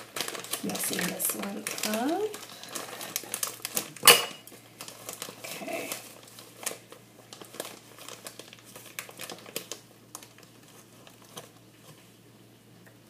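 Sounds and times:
sugar bag crinkling: 0:00.0 - 0:12.1.

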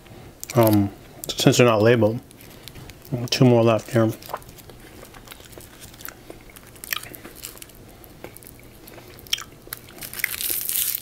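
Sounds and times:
foil wrapper crinkling: 0:01.8 - 0:11.0
chewing chocolate: 0:02.2 - 0:11.0.

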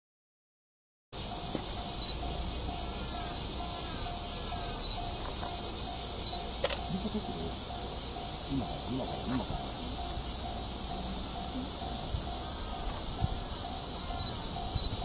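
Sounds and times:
insects buzzing: 0:01.2 - 0:15.0
sharp click: 0:06.6 - 0:06.9.

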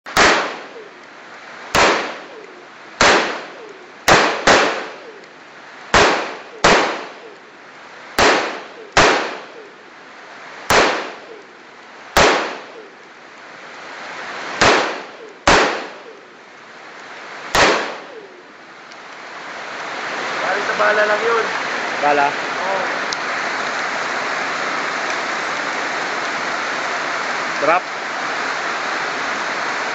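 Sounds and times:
rifle shots: 0:00.1 - 0:00.8, 0:01.7 - 0:02.4, 0:03.0 - 0:05.2, 0:05.9 - 0:07.3, 0:08.2 - 0:09.6, 0:10.7 - 0:11.4, 0:12.2 - 0:12.9, 0:14.6 - 0:16.2, 0:17.5 - 0:18.3.

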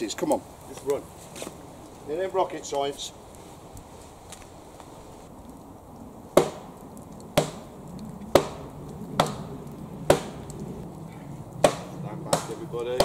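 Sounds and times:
axe chopping wood: 0:06.4 - 0:06.7, 0:07.4 - 0:07.7, 0:08.3 - 0:08.6, 0:09.2 - 0:09.5, 0:10.1 - 0:10.4, 0:11.6 - 0:13.0.

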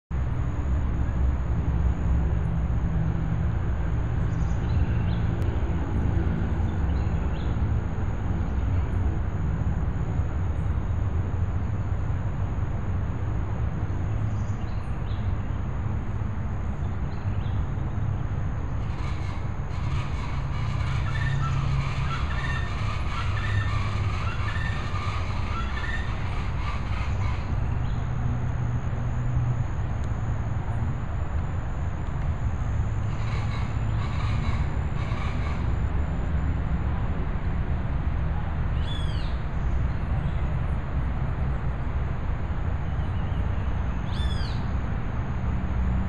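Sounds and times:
high bird calls: 0:18.8 - 0:28.0, 0:33.1 - 0:35.6, 0:44.1 - 0:44.6.

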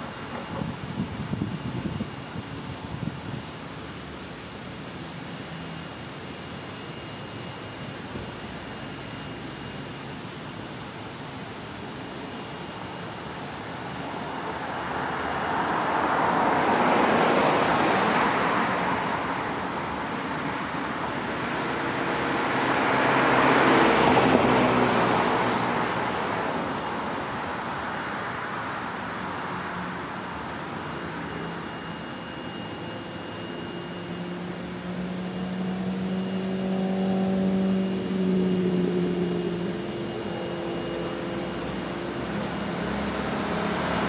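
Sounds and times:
cars driving past: 0:14.3 - 0:44.0.

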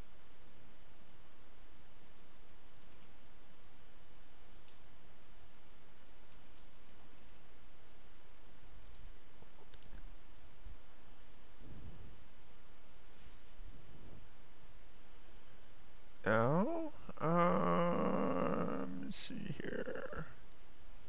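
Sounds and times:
steady background hiss: 0:00.0 - 0:21.0
computer mouse clicks: 0:02.0 - 0:03.4, 0:04.5 - 0:05.6, 0:06.3 - 0:07.5, 0:08.8 - 0:10.1.

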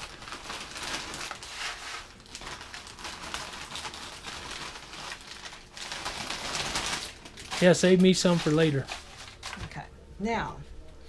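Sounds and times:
foil bag crinkling: 0:00.0 - 0:09.7
chips poured into metal pan: 0:06.0 - 0:09.6.

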